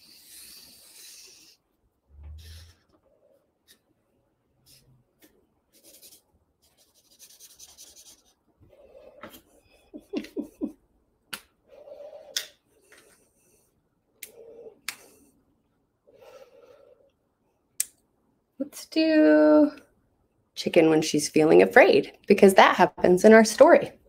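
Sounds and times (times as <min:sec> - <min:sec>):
marker scribbling on paper: 0:05.7 - 0:09.4.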